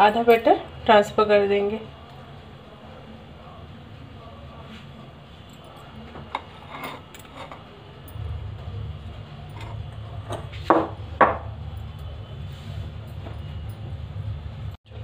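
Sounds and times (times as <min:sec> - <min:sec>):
bowls knocking on stone: 0:09.6 - 0:11.6.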